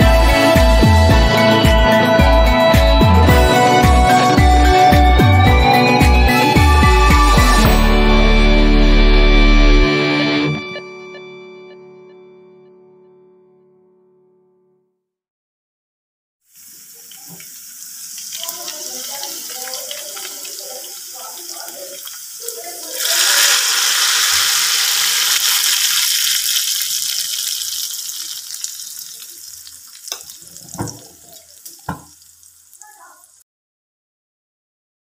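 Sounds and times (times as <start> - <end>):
hot oil sizzling: 16.4 - 33.4.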